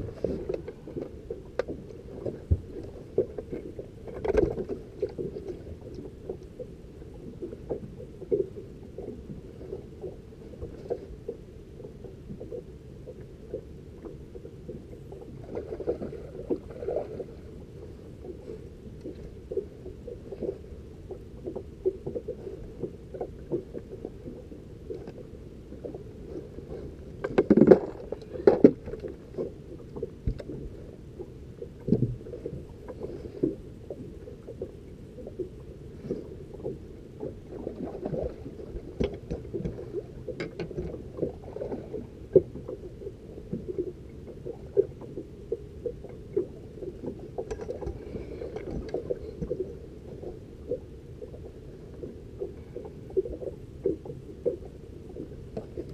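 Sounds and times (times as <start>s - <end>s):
water slapping against boat hull: 27.2s - 30.6s.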